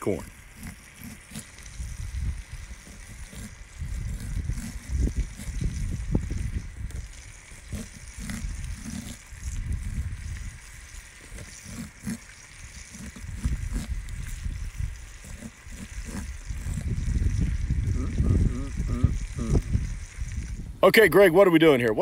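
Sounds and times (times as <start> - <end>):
low uneven rumble: 0.0 - 22.0
knife cutting on wooden board: 0.6 - 1.9, 2.6 - 5.7, 7.6 - 9.3, 11.2 - 14.1, 15.2 - 16.9.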